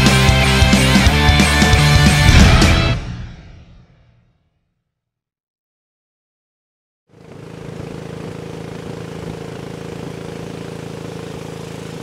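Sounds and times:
boat engine running: 7.1s - 12.0s.

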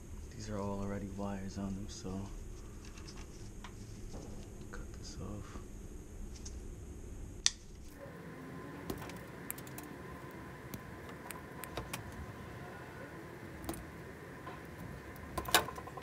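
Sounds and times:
tools and wires rattling: 14.5s - 16.0s.

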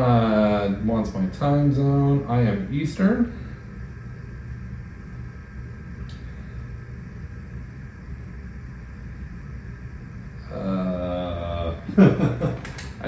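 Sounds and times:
low hum and rumble: 0.0s - 13.0s
faint click: 6.0s - 6.2s.

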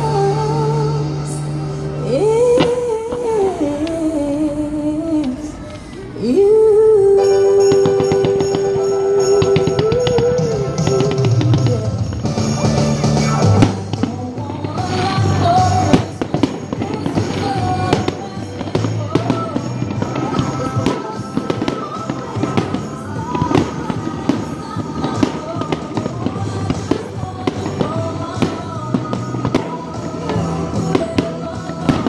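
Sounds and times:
loud music playing: 7.2s - 32.0s
fireworks popping and crackling: 7.6s - 32.0s.

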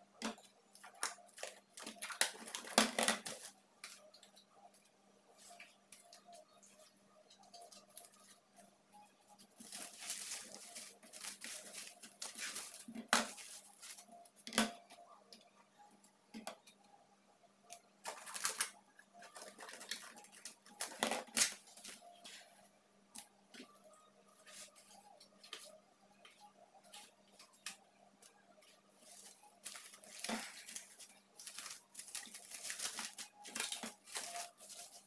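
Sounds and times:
cling film rustling: 29.0s - 35.0s.

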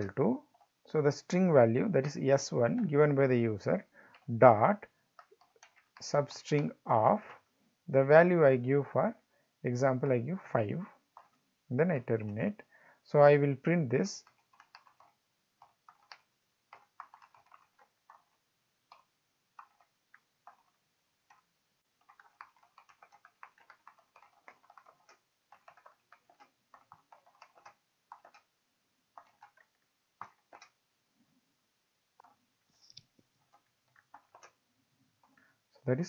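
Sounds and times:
typing on computer keyboard: 4.0s - 6.8s, 10.7s - 11.4s, 14.0s - 28.5s, 29.1s - 30.8s, 32.2s - 32.4s, 33.4s - 34.6s, 35.2s - 35.5s.

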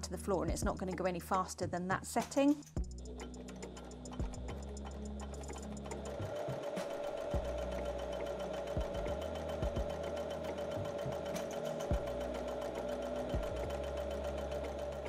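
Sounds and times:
sewing machine stitching: 3.2s - 15.0s.

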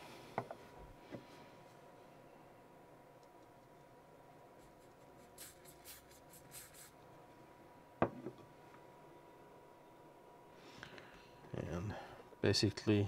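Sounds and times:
aerosol can spraying: 5.2s - 7.0s
can knocking on wooden table: 8.0s - 8.4s.

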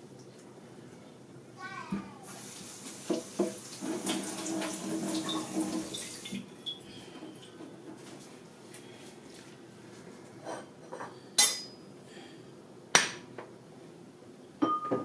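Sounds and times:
water running from tap: 2.2s - 6.8s.

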